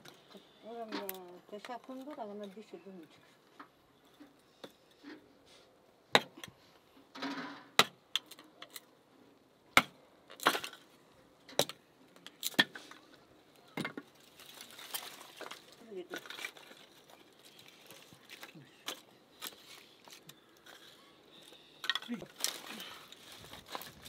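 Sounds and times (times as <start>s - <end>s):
hatchet chopping wood: 6.1s - 6.4s, 7.8s - 8.0s, 9.8s - 10.7s
wood splitting crackles: 7.2s - 8.9s, 9.7s - 10.9s, 11.5s - 24.0s.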